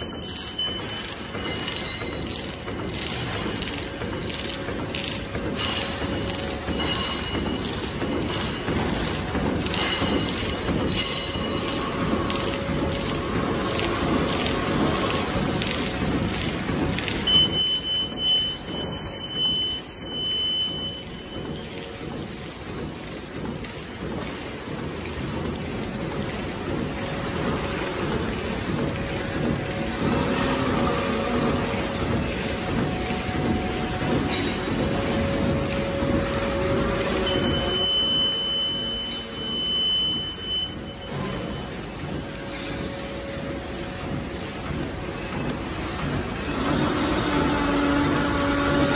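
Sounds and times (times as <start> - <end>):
bag making machine running: 0.0 - 48.9
high-pitched beep tone: 37.2 - 41.6.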